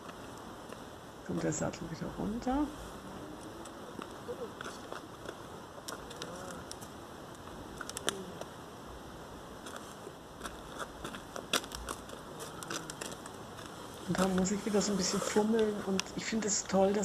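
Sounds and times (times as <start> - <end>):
outdoor background hiss: 0.0 - 17.0
saddle clicks and rustles: 9.6 - 15.8.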